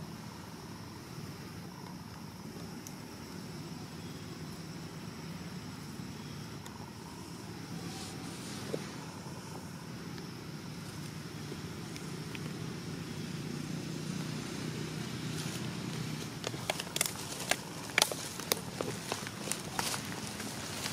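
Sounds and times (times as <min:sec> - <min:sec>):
dry leaves crackling: 0:07.7 - 0:09.6, 0:10.7 - 0:20.9.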